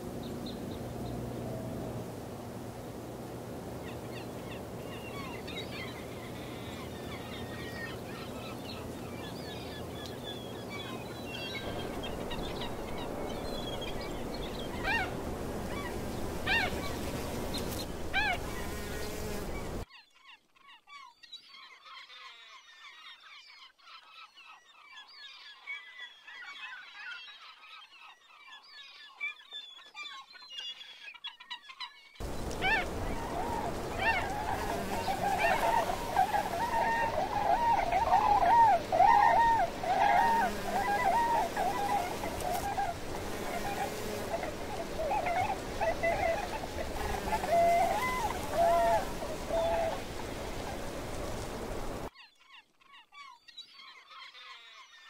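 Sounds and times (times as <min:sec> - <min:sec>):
steady low hum: 0:00.0 - 0:19.8
birds chirping and calling: 0:03.8 - 0:55.0.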